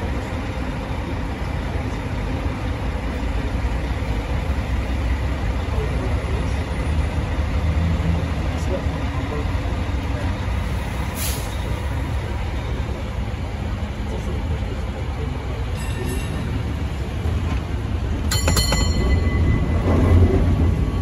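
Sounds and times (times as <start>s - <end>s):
streetcar low rumble: 0.0s - 21.0s
streetcar bell ringing: 15.7s - 21.0s.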